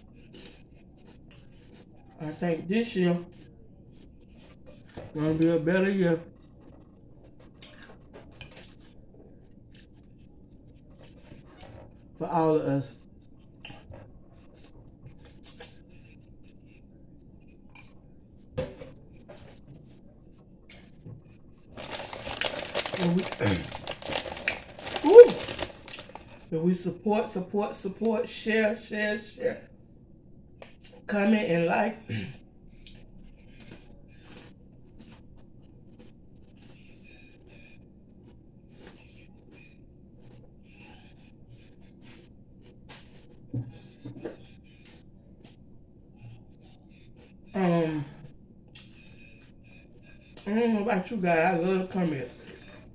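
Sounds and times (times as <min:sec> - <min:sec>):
low steady hum: 0:00.0 - 0:52.9
chewing: 0:32.8 - 0:40.9.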